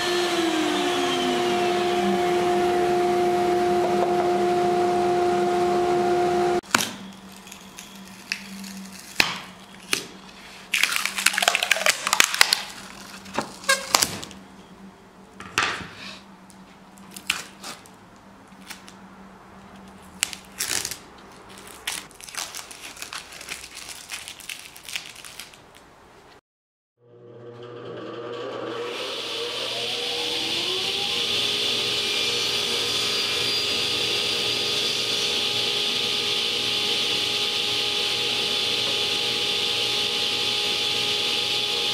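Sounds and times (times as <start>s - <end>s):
machine hum: 0.0s - 7.6s, 27.1s - 41.9s
crackly scraping on wood: 7.1s - 14.4s.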